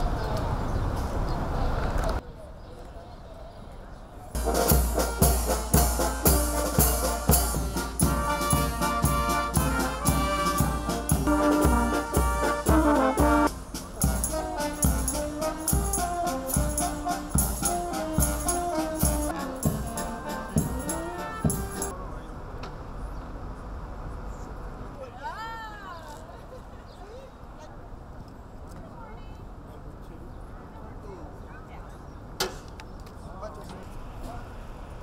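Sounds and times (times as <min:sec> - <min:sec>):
brass band playing lively tune: 0:04.4 - 0:22.0.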